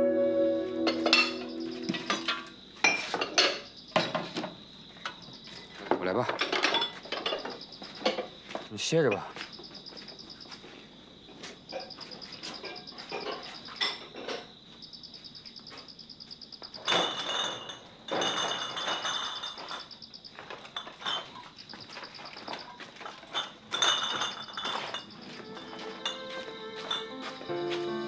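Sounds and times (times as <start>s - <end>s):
insects chirping: 0.0s - 28.0s
crockery and crates clattering: 0.8s - 9.4s, 11.7s - 14.6s, 16.8s - 27.9s.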